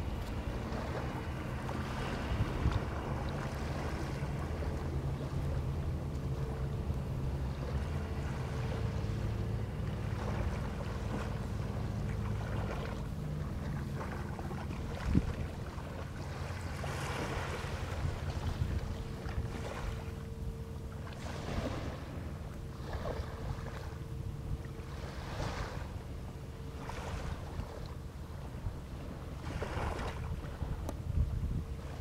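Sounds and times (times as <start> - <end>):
wind on microphone: 0.0 - 6.0, 13.9 - 20.1, 28.5 - 32.0
boat engine humming: 0.0 - 32.0.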